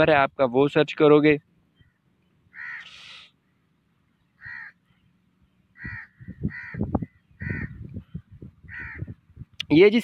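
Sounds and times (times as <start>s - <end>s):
crow cawing: 1.8s - 3.4s, 4.4s - 5.0s, 5.7s - 9.2s.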